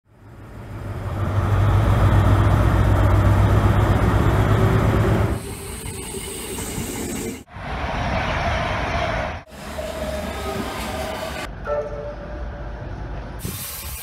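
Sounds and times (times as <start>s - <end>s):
diesel engine droning: 0.1s - 5.5s
rail sound with high whine: 0.1s - 14.0s.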